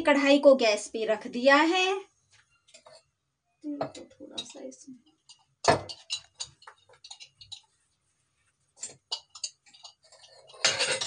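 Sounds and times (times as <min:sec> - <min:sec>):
kitchen clatter: 0:03.8 - 0:07.9, 0:08.8 - 0:11.0.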